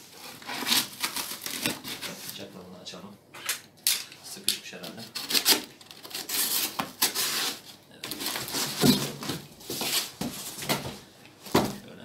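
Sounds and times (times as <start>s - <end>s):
packaging rustling and scraping: 0.0s - 2.5s, 4.8s - 11.8s.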